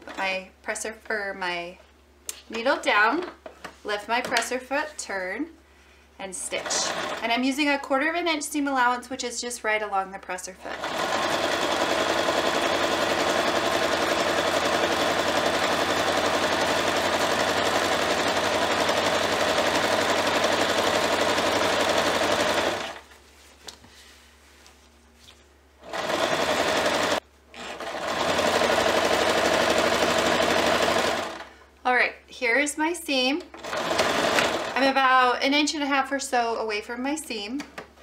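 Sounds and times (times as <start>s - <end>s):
electric sewing machine running: 6.5s - 7.3s, 10.7s - 23.0s, 25.8s - 31.5s, 33.6s - 34.9s.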